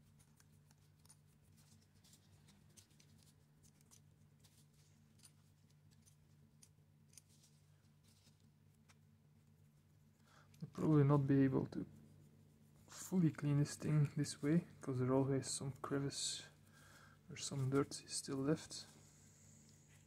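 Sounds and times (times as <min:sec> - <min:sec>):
cotton swab scrubbing metal: 0:00.0 - 0:14.9
faint low hum: 0:00.0 - 0:20.0.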